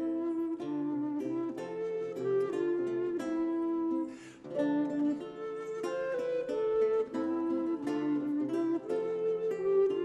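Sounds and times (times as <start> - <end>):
plucked lute: 0.0 - 10.0.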